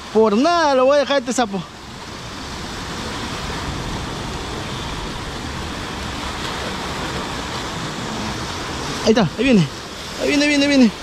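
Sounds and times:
sea surf breaking on rocks: 0:00.0 - 0:11.0.

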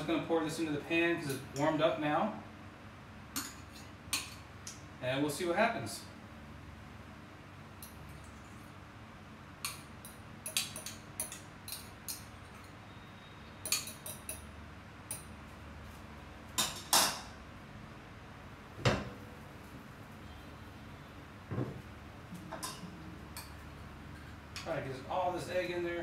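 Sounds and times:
metal spoon clinking on bowl: 0:09.6 - 0:12.8, 0:13.6 - 0:14.5.

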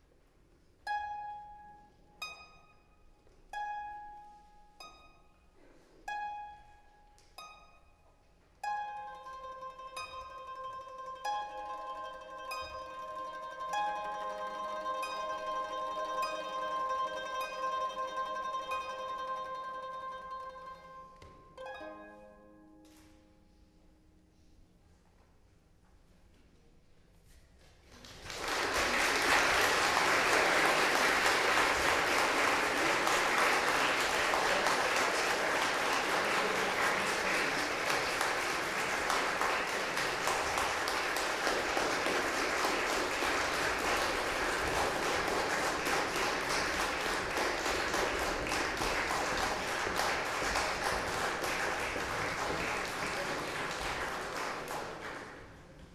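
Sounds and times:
audience applauding: 0:11.7 - 0:19.4, 0:27.9 - 0:55.8.

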